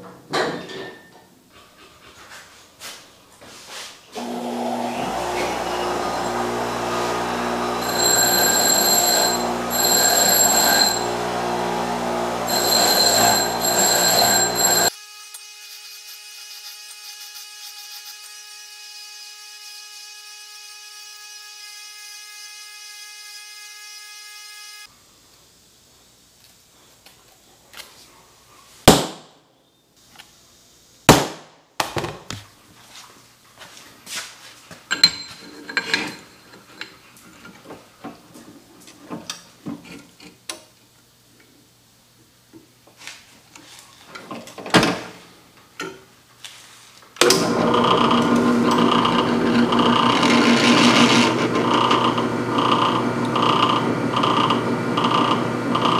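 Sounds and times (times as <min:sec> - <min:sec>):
bench grinder motor running: 0:04.2 - 0:14.9, 0:47.3 - 0:55.9
drill press drilling metal: 0:04.2 - 0:14.9, 0:47.2 - 0:55.9.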